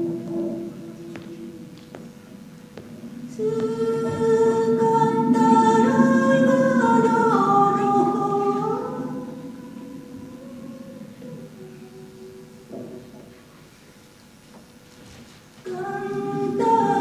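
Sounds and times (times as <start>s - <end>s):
woman singing unaccompanied: 3.3s - 12.7s, 15.6s - 17.0s.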